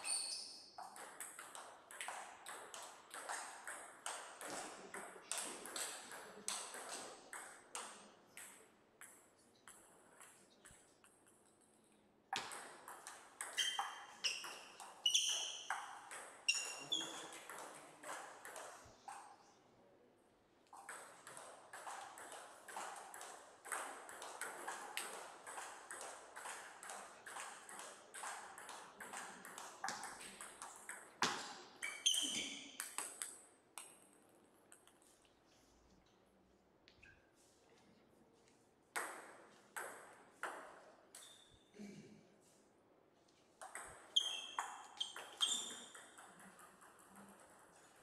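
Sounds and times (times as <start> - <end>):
table tennis balls clicking: 0.8 - 19.4, 20.7 - 35.2, 43.6 - 48.0.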